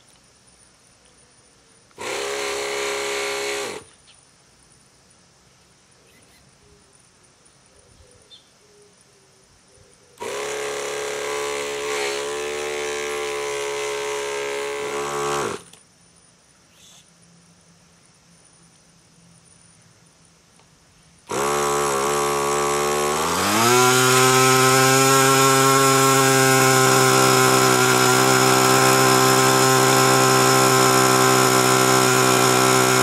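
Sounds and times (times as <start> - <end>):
electric starter cranking whine: 1.9 - 3.9, 10.2 - 15.8, 21.2 - 33.0.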